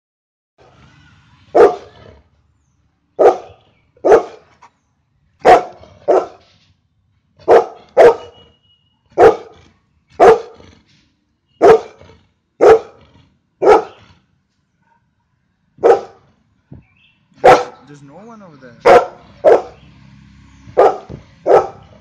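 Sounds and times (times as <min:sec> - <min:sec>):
dog barking: 0:01.5 - 0:02.0, 0:03.2 - 0:04.5, 0:05.4 - 0:06.4, 0:07.4 - 0:08.5, 0:09.1 - 0:09.6, 0:10.2 - 0:10.6, 0:11.6 - 0:12.0, 0:12.6 - 0:13.0, 0:13.6 - 0:14.0, 0:15.8 - 0:16.3, 0:17.4 - 0:17.9, 0:18.8 - 0:19.8, 0:20.8 - 0:22.0.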